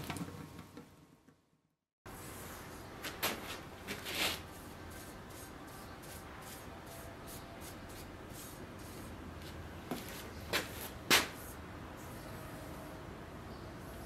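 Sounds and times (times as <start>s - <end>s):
sharp scrape: 2.2s - 4.6s.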